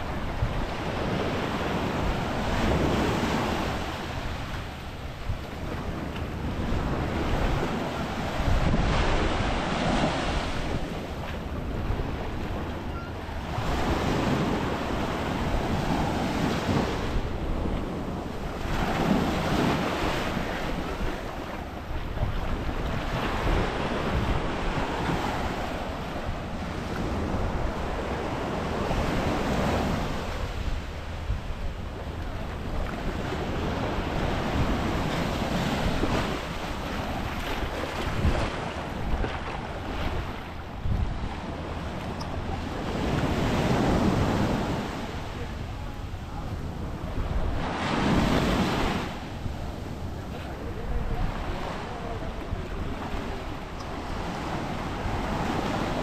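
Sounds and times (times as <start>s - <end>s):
surf breaking on a beach: 0.0s - 56.0s
wind buffeting microphone: 0.0s - 56.0s.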